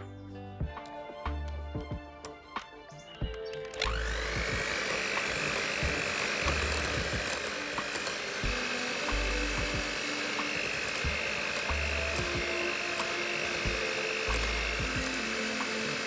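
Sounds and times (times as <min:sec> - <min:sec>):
electric hand mixer whining: 0:00.6 - 0:16.0.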